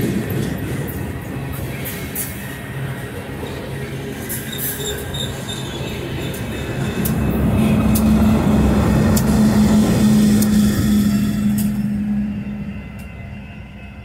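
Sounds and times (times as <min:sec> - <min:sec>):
diesel locomotive engine humming: 0:00.0 - 0:14.0
train wheel clicks: 0:06.3 - 0:07.2, 0:09.0 - 0:09.4.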